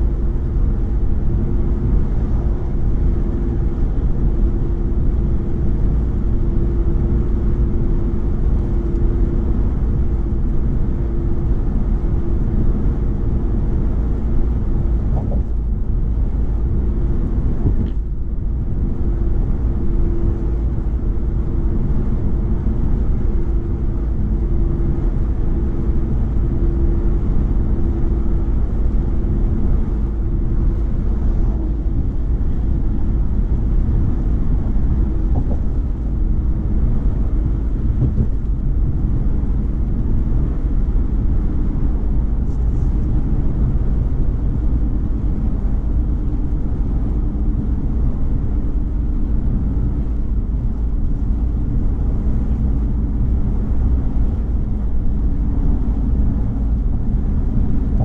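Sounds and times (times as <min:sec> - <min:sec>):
car engine and tyre road noise: 0:00.0 - 0:58.0
faint steady hum: 0:00.0 - 0:58.0.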